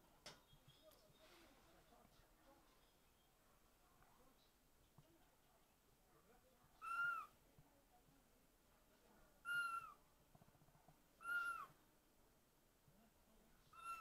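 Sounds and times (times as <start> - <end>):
kitten meowing: 6.8 - 7.3, 9.5 - 10.0, 11.2 - 11.7, 13.7 - 14.0.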